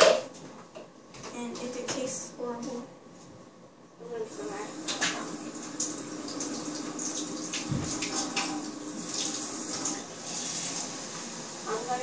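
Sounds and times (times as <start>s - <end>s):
water running from faucet: 4.2s - 12.0s.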